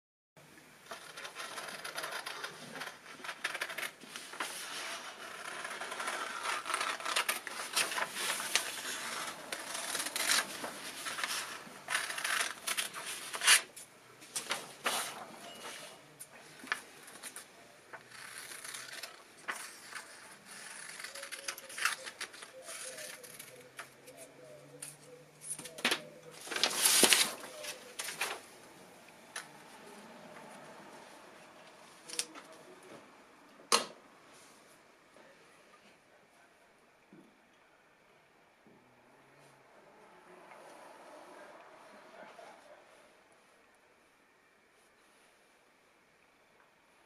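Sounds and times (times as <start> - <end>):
paper rustling: 0.9 - 24.3, 25.4 - 28.6
scissors snipping paper: 18.1 - 23.6.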